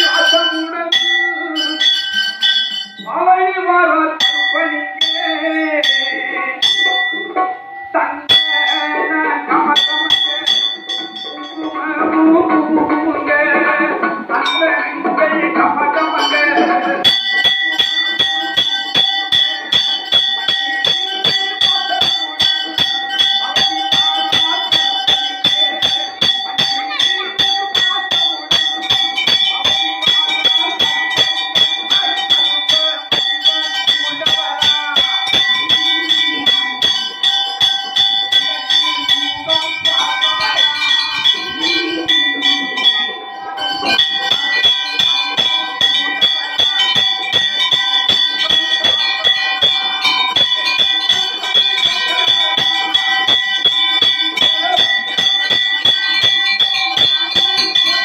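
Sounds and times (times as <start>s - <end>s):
metal bell ringing: 0.0s - 58.0s.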